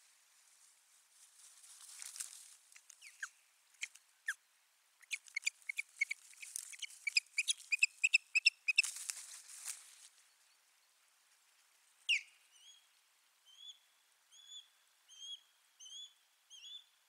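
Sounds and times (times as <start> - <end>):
rustle: 0.0 - 17.0
osprey chirping: 5.0 - 8.9.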